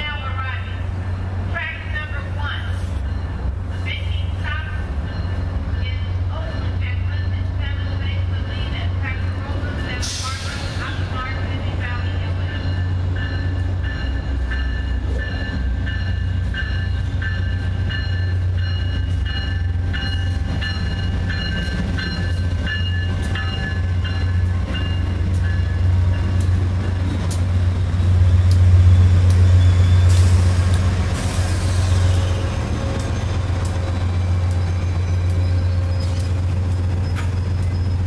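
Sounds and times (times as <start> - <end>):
locomotive bell ringing: 0.0 - 10.0, 10.9 - 30.6, 31.5 - 38.0
diesel locomotive engine rumbling: 0.0 - 38.0
train wheel noise: 0.0 - 38.0
hiss: 10.0 - 11.0.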